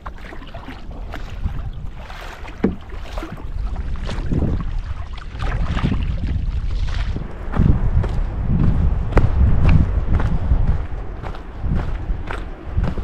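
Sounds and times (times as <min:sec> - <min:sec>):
sea water splashing: 0:00.0 - 0:07.7
wind buffeting microphone: 0:00.0 - 0:13.0.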